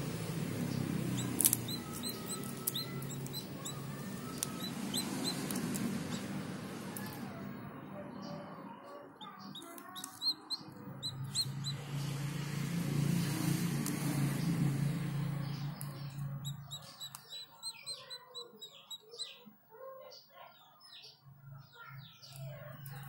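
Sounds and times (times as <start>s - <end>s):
small birds chirping: 0.0s - 23.0s
eggshell clicks: 1.2s - 6.2s, 9.6s - 11.5s, 15.8s - 17.9s.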